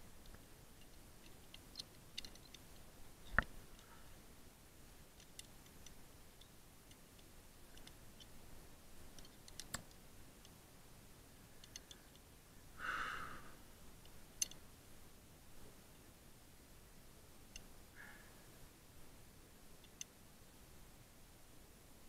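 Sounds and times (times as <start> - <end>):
climbing hardware clicking and clinking: 0.8 - 3.9, 9.1 - 10.6.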